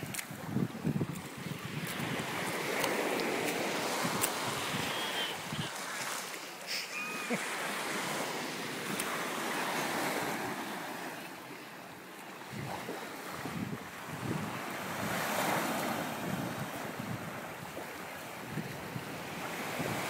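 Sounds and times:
wind buffeting microphone: 0:00.0 - 0:05.7, 0:12.4 - 0:20.0
surf washing up beach: 0:00.0 - 0:20.0.

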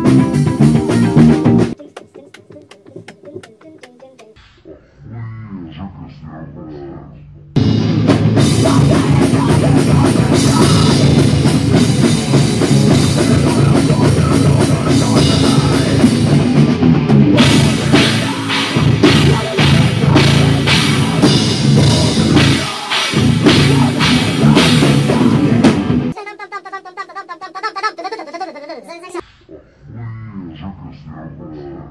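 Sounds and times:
drum kit: 0:00.0 - 0:03.7, 0:07.6 - 0:26.2.

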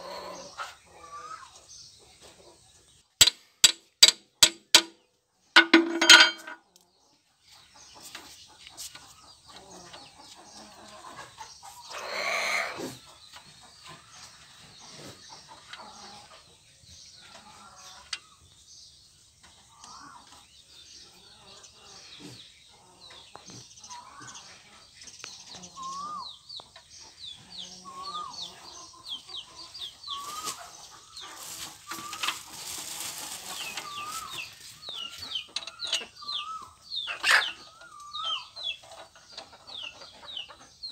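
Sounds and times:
birds chirping: 0:00.0 - 0:40.9
metal gears clinking: 0:05.6 - 0:06.6.

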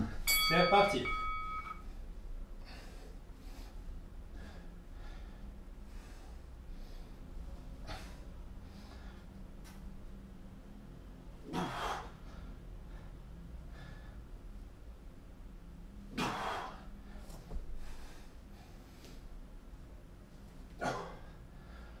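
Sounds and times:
man breathing hard: 0:02.6 - 0:09.5, 0:11.4 - 0:14.5, 0:16.2 - 0:19.3, 0:20.8 - 0:22.0.

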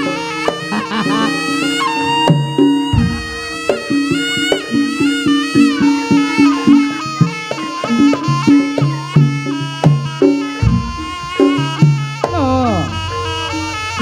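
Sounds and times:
nasal reed horn melody: 0:00.0 - 0:14.0
steady hand drum beat: 0:00.0 - 0:14.0
ringing gong-chime notes: 0:12.3 - 0:14.0.

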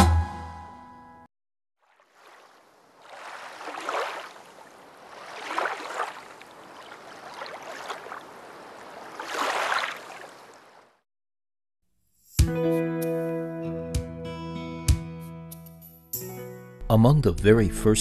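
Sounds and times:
ocean waves washing in: 0:01.8 - 0:10.8.

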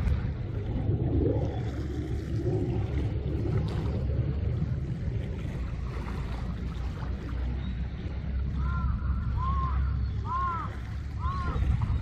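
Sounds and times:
low harbour rumble: 0:00.0 - 0:12.0
gull calling: 0:08.5 - 0:12.0.

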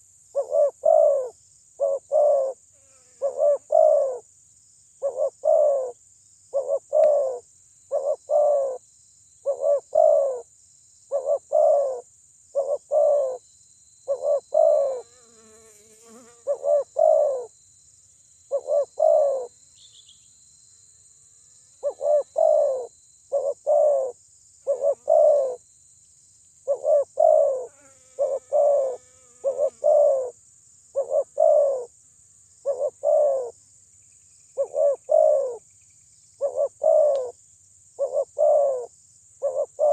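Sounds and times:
dove cooing: 0:00.0 - 0:02.6, 0:03.2 - 0:04.2, 0:05.0 - 0:08.8, 0:09.4 - 0:10.4, 0:11.1 - 0:12.0, 0:12.6 - 0:13.4, 0:14.1 - 0:15.1, 0:16.4 - 0:17.5, 0:18.5 - 0:19.5, 0:21.8 - 0:25.6, 0:26.7 - 0:30.4, 0:31.0 - 0:31.9, 0:32.6 - 0:33.6, 0:34.6 - 0:35.6, 0:36.4 - 0:37.4, 0:38.0 - 0:39.9.

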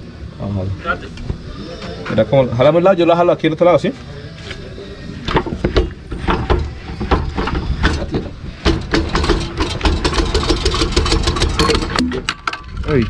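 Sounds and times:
metal knocks and clanks: 0:05.3 - 0:13.0.

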